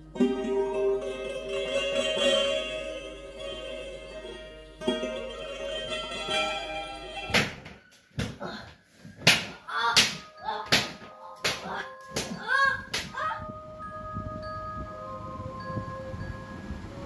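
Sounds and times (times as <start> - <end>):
plucked-string music: 0.0 - 8.2, 9.2 - 17.0
sharp slaps or blows: 7.3 - 8.4, 9.2 - 13.2.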